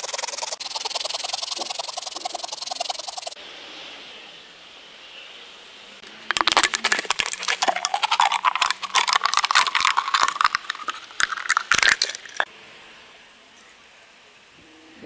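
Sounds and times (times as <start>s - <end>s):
water poured into a glass: 6.3s - 12.4s.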